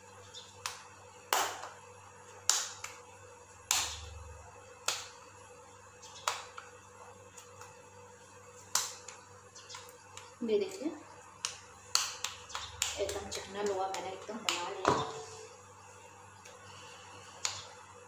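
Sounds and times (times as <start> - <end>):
hands clapping: 0.6 - 1.8, 2.4 - 3.0, 3.7 - 4.0, 4.8 - 5.1, 6.2 - 6.6, 11.4 - 14.7.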